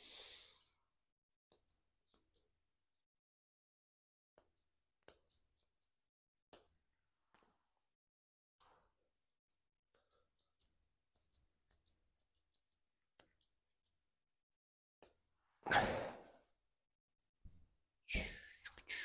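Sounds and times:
scissors snipping fur: 1.5s - 2.6s, 4.3s - 7.5s, 8.6s - 14.0s, 15.0s - 15.3s.

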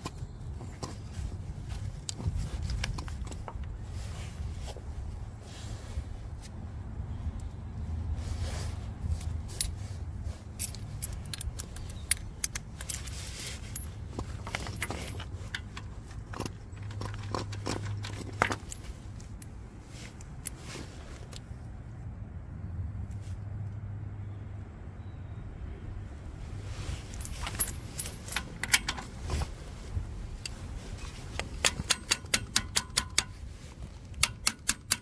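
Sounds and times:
small metal pieces clinking: 10.5s - 18.9s, 27.1s - 29.2s.

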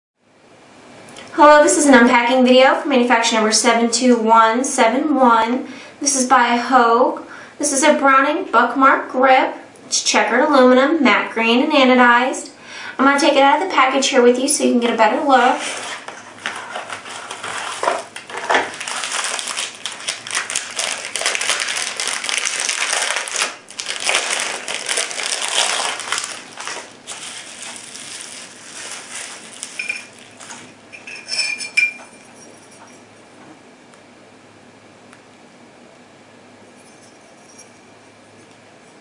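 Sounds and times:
plastic packaging crinkling: 15.4s - 31.2s
light metallic clinks: 36.8s - 37.9s.

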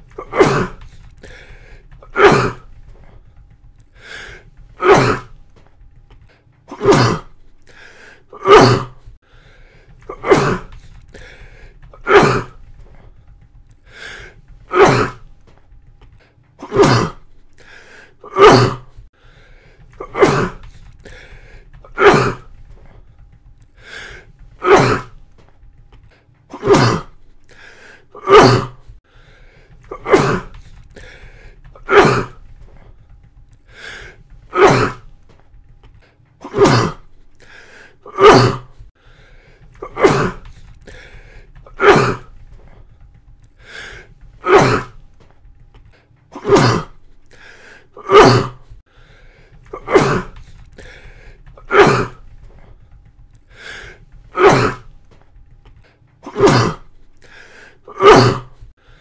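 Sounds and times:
person coughing: 0.1s - 0.9s, 6.7s - 7.3s, 10.1s - 11.4s, 20.0s - 20.6s, 26.5s - 27.2s, 29.9s - 30.6s, 46.3s - 47.0s, 56.2s - 56.9s.

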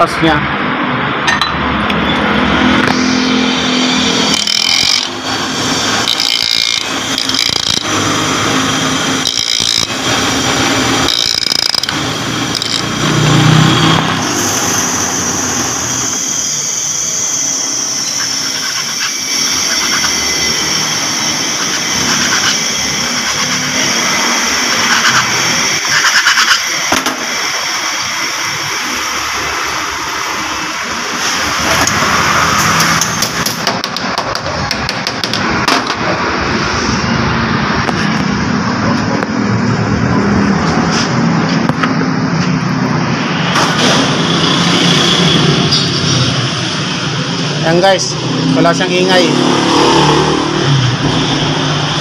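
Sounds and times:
bench grinder grinding metal: 2.8s - 15.6s, 17.4s - 28.0s.

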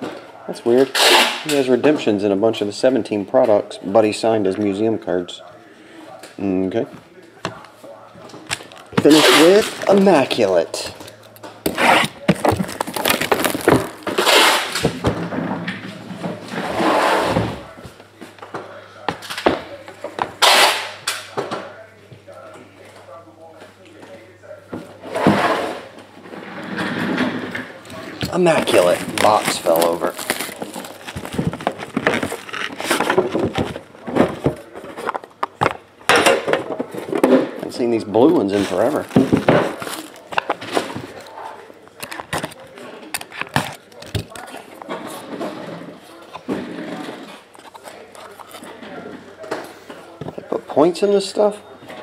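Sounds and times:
shrink-wrap crackling and tearing: 11.8s - 14.8s, 28.2s - 33.1s, 38.5s - 40.6s.

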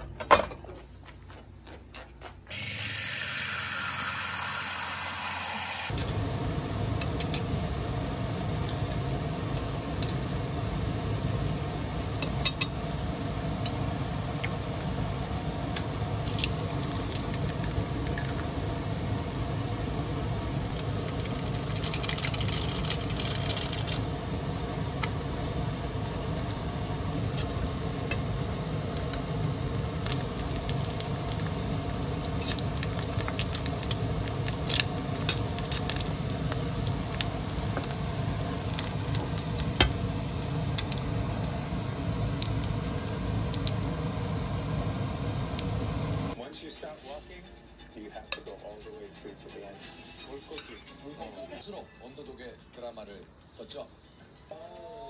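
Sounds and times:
steady low hum: 0.0s - 46.4s
seasoning powder rustling hiss: 2.5s - 6.9s, 20.7s - 46.3s
chopsticks clicking and scraping pan: 32.2s - 36.2s.

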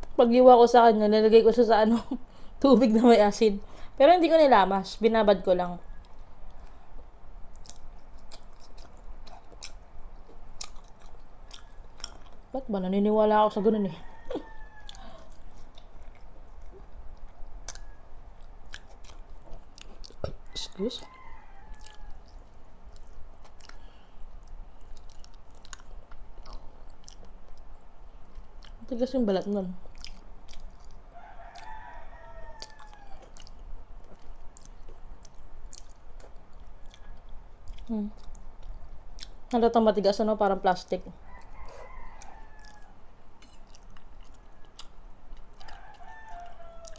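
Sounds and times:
close chewing: 5.9s - 12.6s, 14.1s - 29.0s, 29.8s - 39.6s, 41.2s - 46.9s
rooster crowing: 13.6s - 15.3s, 17.7s - 18.2s, 20.5s - 22.4s, 31.1s - 33.3s, 41.2s - 43.1s, 45.6s - 46.9s
wet mouth clicks and smacks: 32.6s - 39.4s.

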